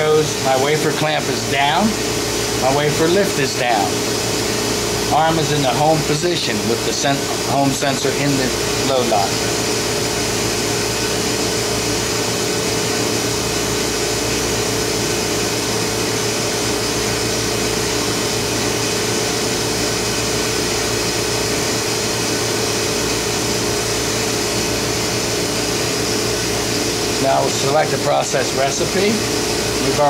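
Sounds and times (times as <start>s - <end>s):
mid-pitched hum: 0.0s - 30.0s
vacuum pumps and ventilation drone: 0.0s - 30.0s.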